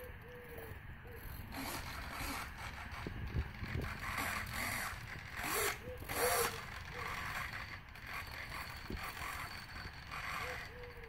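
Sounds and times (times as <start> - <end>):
small servos whirring: 0.0 - 11.0.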